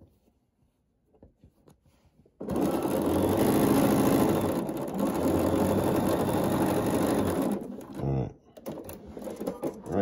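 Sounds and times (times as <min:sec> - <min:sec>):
sewing machine running: 0:02.4 - 0:10.0.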